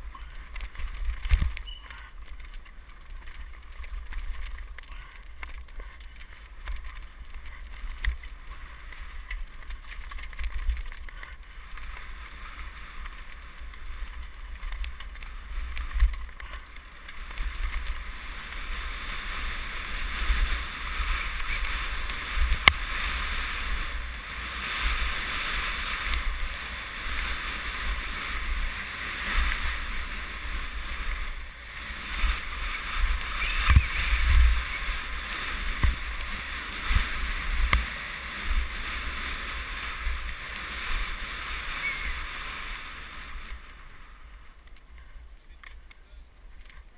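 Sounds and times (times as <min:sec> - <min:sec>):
tyres rolling on dirt trail: 0:00.0 - 0:46.9
wind rushing over microphone: 0:03.2 - 0:44.5.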